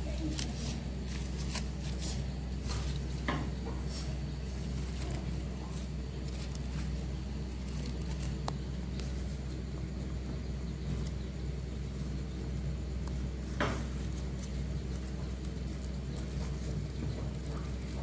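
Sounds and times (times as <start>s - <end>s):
leaf wrapping crinkling: 0.0s - 9.4s, 13.0s - 18.0s
steady low hum: 0.0s - 18.0s.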